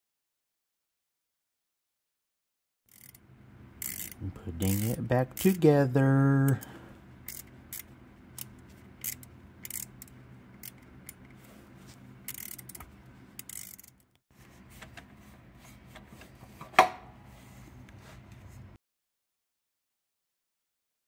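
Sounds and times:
metal parts clicking and scraping: 2.9 - 3.2, 3.8 - 5.7, 6.4 - 11.6, 12.2 - 14.2.

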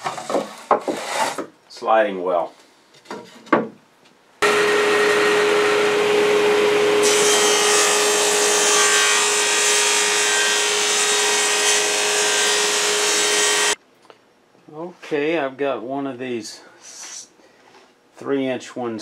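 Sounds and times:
table saw cutting plywood: 4.4 - 13.8.

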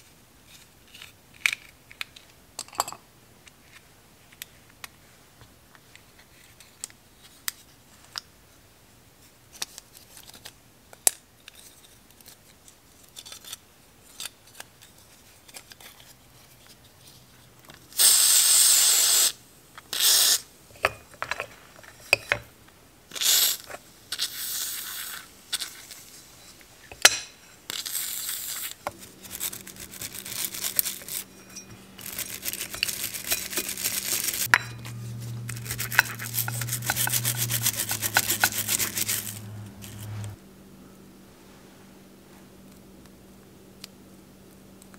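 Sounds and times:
aerosol spray hissing: 18.0 - 19.4
stiff brush scrubbing: 28.9 - 40.4.

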